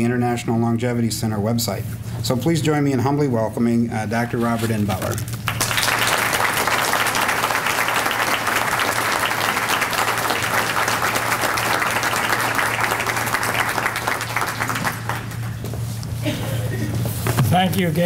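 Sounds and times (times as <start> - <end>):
audience applause: 5.4 - 15.7.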